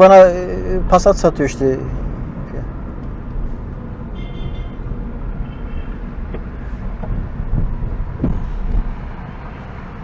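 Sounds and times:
car engine and tyres rumbling: 0.0s - 10.0s
low thumps: 6.2s - 9.0s.

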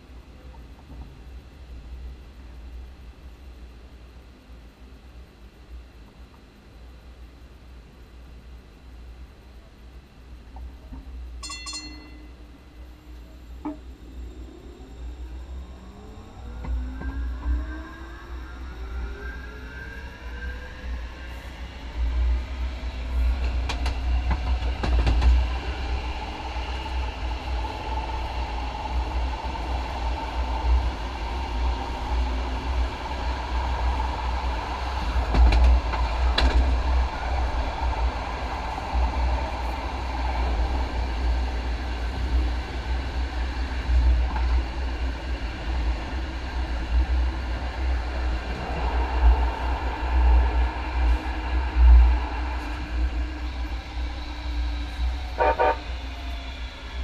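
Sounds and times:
wheels rumbling on rail: 0.0s - 57.0s
train motor whine: 11.5s - 31.3s, 50.1s - 57.0s.

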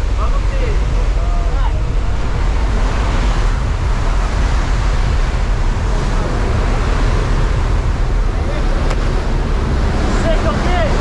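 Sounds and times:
plane engine roar: 0.0s - 11.0s
wind rushing: 0.0s - 11.0s.

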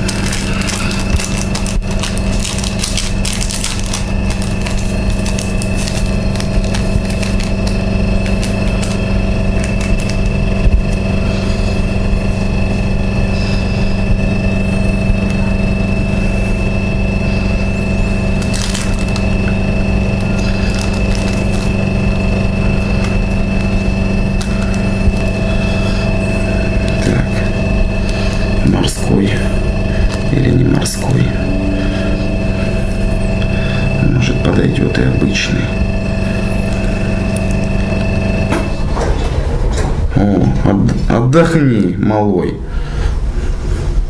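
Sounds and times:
hands crumbling dry herb: 0.0s - 11.0s, 18.3s - 19.6s, 20.2s - 21.9s
steady mechanical hum: 0.0s - 44.0s.

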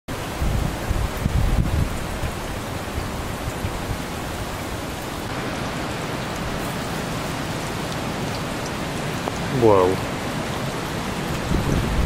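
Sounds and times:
steady rain: 0.1s - 12.0s
wind buffeting microphone: 0.2s - 9.6s, 10.2s - 12.0s
storm wind rushing: 0.3s - 8.4s, 11.1s - 12.0s.

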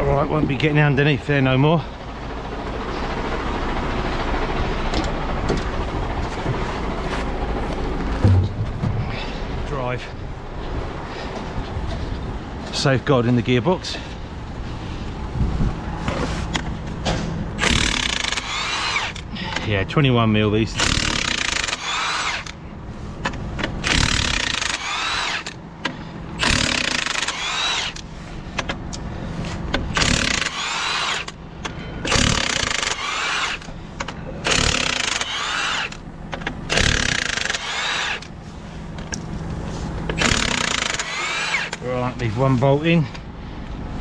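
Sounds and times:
power tool whining: 17.6s - 19.7s, 20.8s - 22.6s, 23.3s - 28.7s, 29.8s - 38.3s, 40.0s - 41.9s.

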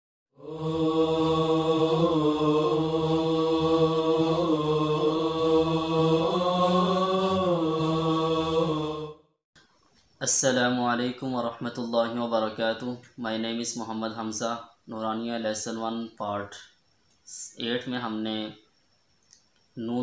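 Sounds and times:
steady high tone: 0.4s - 9.2s
chanted vocal drone: 0.4s - 9.4s.

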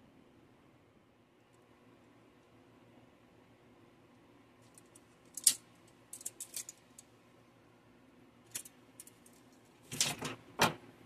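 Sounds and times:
small hard objects clicking: 4.6s - 7.1s.

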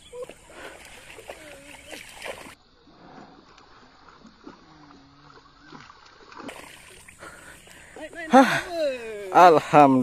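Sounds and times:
fish splashing at water surface: 3.4s - 7.5s.

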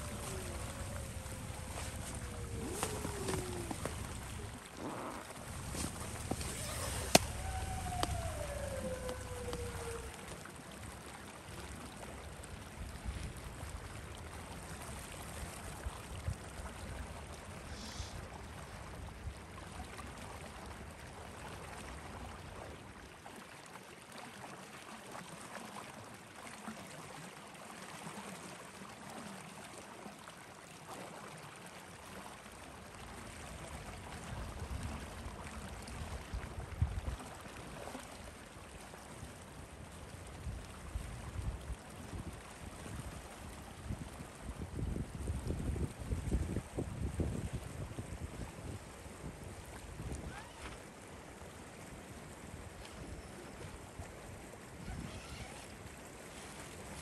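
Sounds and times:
wind buffeting microphone: 0.0s - 10.4s, 40.4s - 50.4s.

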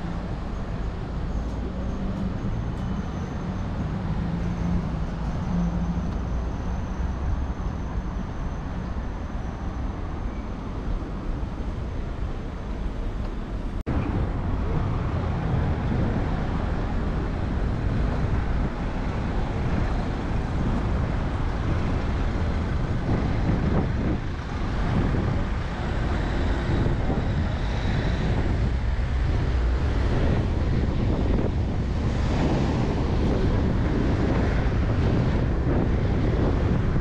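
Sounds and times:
outdoor street noise: 0.0s - 37.0s
wind buffeting microphone: 10.0s - 37.0s.

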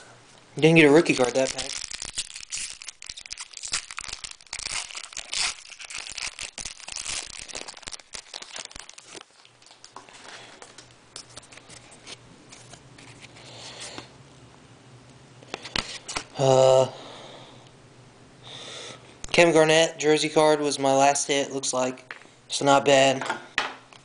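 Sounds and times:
foil wrapper crinkling and tearing: 0.8s - 13.8s.

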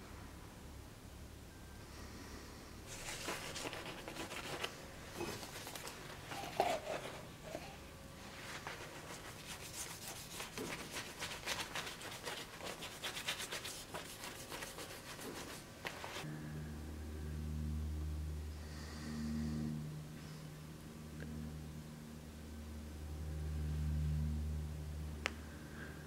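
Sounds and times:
scratchy scrubbing on steel: 2.9s - 7.8s, 8.4s - 16.2s.

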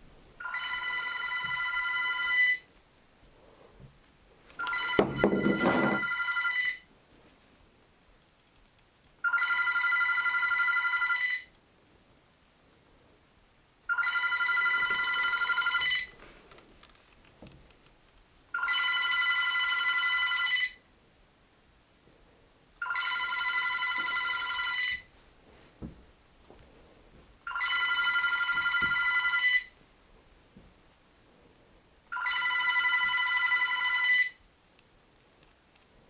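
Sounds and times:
telephone ringing: 0.4s - 2.7s, 4.6s - 6.9s, 9.2s - 11.6s, 13.9s - 16.2s, 18.5s - 20.8s, 22.8s - 25.1s, 27.4s - 29.8s, 32.1s - 34.4s.

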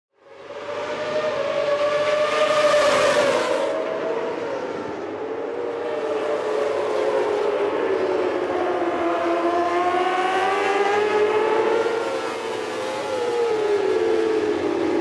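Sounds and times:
racing motorcycles at high revs: 9.0s - 13.8s.

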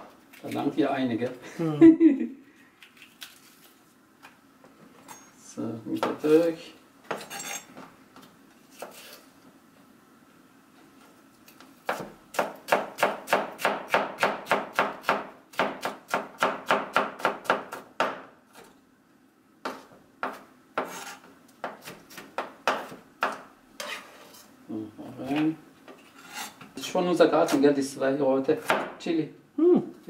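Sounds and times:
knife chopping on cutting board: 11.8s - 18.3s, 19.6s - 24.0s, 28.6s - 29.0s.

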